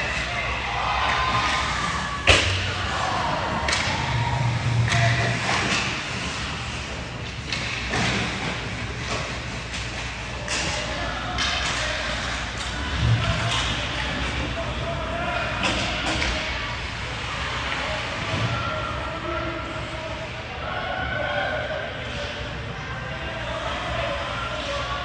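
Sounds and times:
people shouting: 0.0s - 5.9s.

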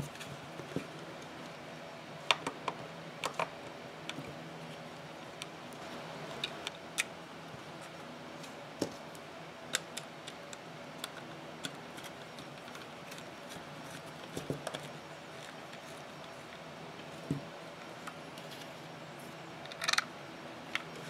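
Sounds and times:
plastic parts clicking: 19.6s - 20.1s.

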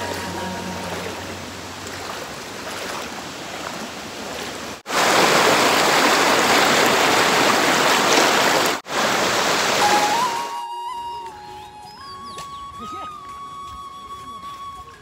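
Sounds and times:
floodwater rushing: 0.0s - 10.7s.

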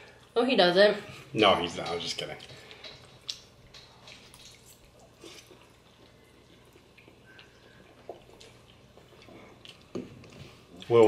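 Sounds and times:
chewing: 1.9s - 11.0s
mouth smacks and clicks: 2.4s - 5.6s.

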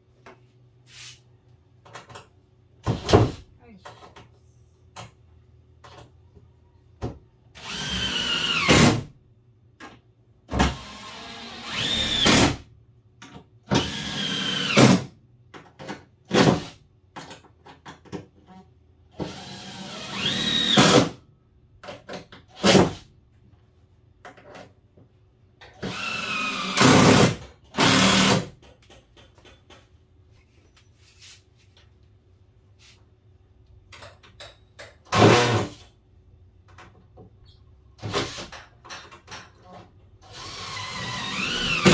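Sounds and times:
cordless drill driving screws: 7.6s - 9.0s, 10.7s - 12.5s, 13.7s - 15.0s, 19.2s - 21.1s, 25.8s - 28.4s, 40.3s - 41.9s.

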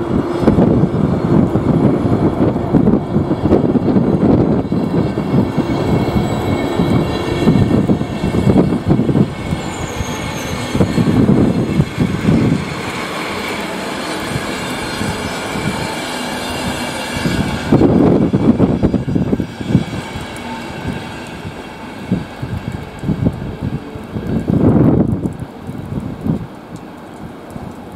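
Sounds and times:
train coaches rumbling past: 0.0s - 25.7s.

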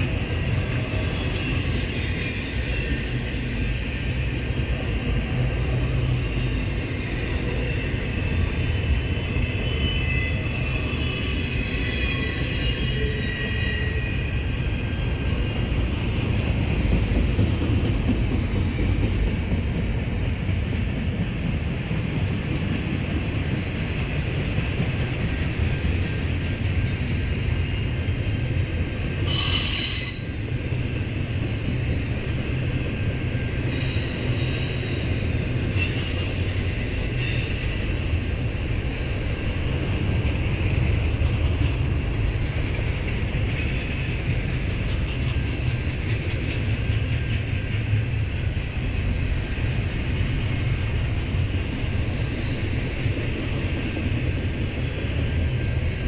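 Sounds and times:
train wheels rumbling on rail: 0.0s - 56.0s
wheel squeal: 0.5s - 4.2s, 29.3s - 30.5s, 33.7s - 44.2s.

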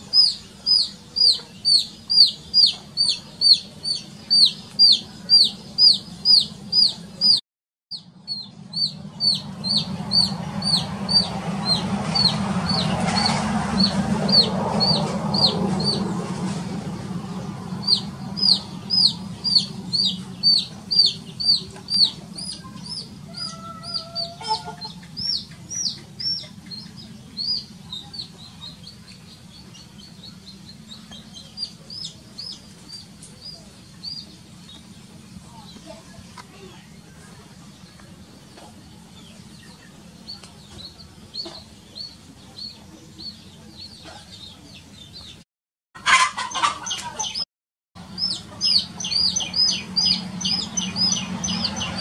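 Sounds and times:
chick peeping: 0.0s - 45.4s, 46.0s - 47.4s, 48.0s - 52.0s
rushing noise: 8.8s - 23.4s.

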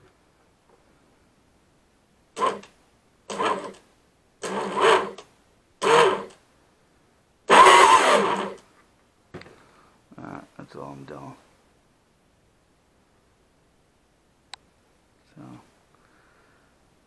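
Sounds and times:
electric motor spinning propeller: 2.4s - 2.7s, 3.3s - 3.8s, 4.4s - 5.2s, 5.8s - 6.4s, 7.5s - 8.6s.

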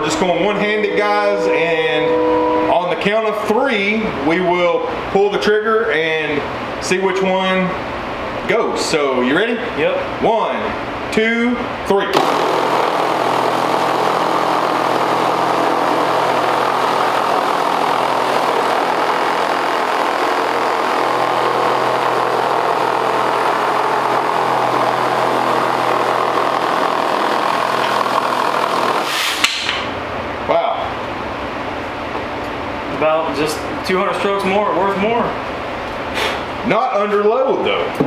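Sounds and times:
reciprocating saws cutting wood: 12.2s - 29.4s.

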